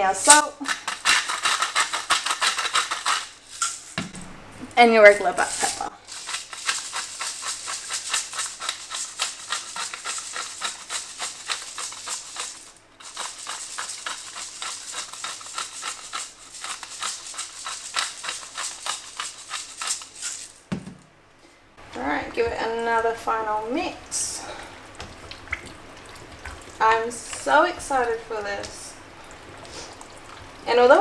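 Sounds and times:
pepper mill grinding: 0:00.2 - 0:03.9, 0:05.2 - 0:20.6.

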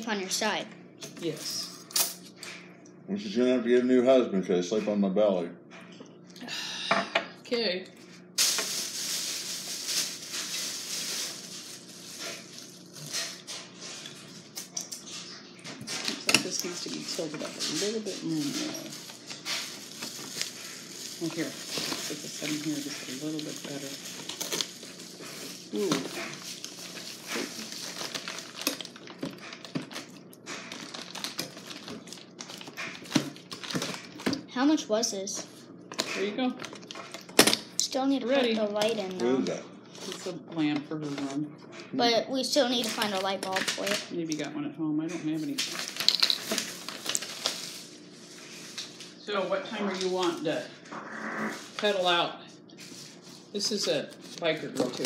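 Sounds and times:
plastic packaging crinkling: 0:08.4 - 0:14.8, 0:16.0 - 0:34.5, 0:35.9 - 0:37.8, 0:42.6 - 0:44.1, 0:45.6 - 0:49.2, 0:53.8 - 0:55.0.

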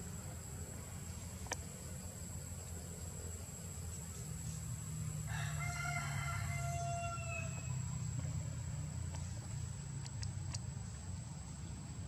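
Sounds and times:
rooster crowing: 0:05.2 - 0:07.8.

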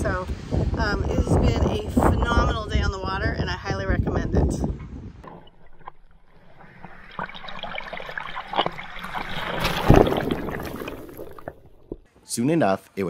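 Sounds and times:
shallow water lapping and fizzing: 0:05.2 - 0:12.1
small wave splashing: 0:05.3 - 0:12.1.

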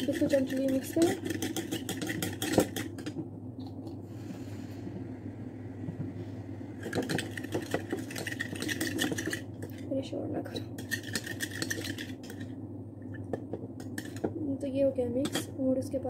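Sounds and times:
spatula scraping small bowl: 0:00.0 - 0:03.0
low hum: 0:02.8 - 0:16.0.

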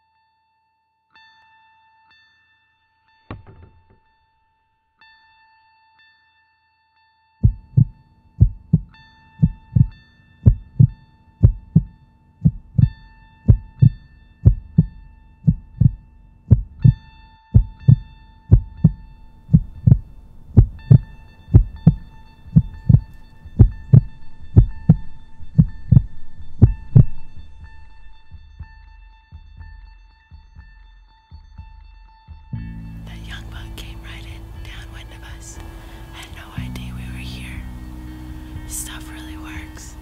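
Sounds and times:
heartbeat thumps: 0:07.4 - 0:28.7.

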